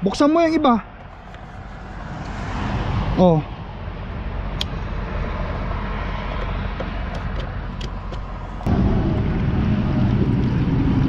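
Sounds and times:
steady low rumble: 0:07.6 - 0:11.0
loud low rumble: 0:08.4 - 0:11.0.

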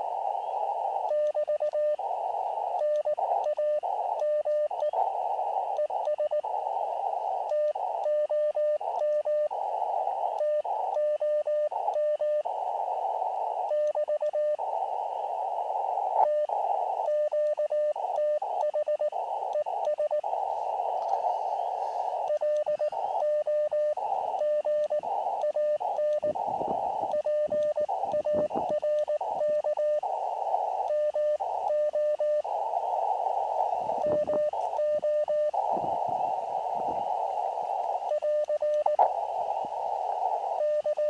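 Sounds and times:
receiver hiss: 0:00.0 - 0:41.0
morse code tone: 0:21.4 - 0:26.5, 0:27.1 - 0:30.0, 0:33.8 - 0:35.6.

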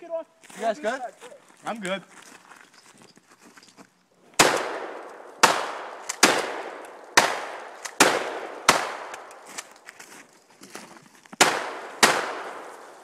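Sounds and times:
shotgun blasts with echo: 0:04.4 - 0:09.4, 0:11.4 - 0:12.9.

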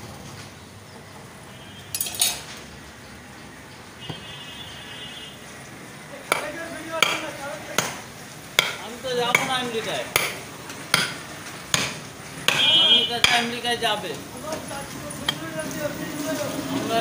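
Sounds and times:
cleaver chopping into wooden block: 0:06.3 - 0:13.6.

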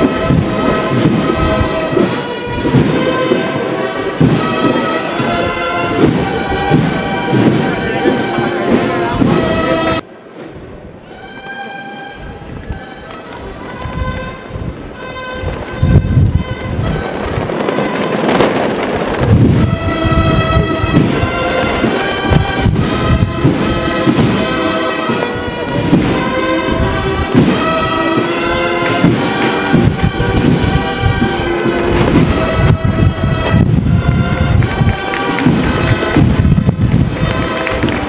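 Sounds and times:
heavy continuous drumming: 0:00.0 - 0:10.0, 0:13.6 - 0:38.0
brass holding long notes: 0:00.0 - 0:10.1, 0:11.0 - 0:38.0.

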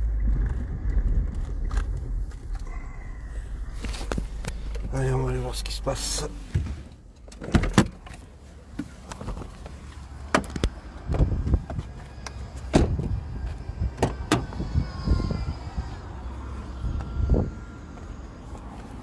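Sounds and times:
person climbing out of car: 0:00.0 - 0:05.2, 0:06.3 - 0:14.6
car door opening: 0:06.2 - 0:09.6, 0:10.3 - 0:14.7.

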